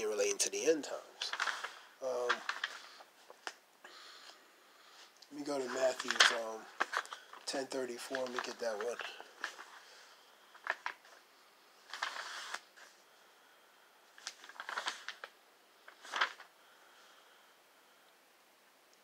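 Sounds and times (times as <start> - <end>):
paper pages rustling: 1.2 - 3.6, 5.4 - 11.2, 11.8 - 13.0, 14.1 - 16.5.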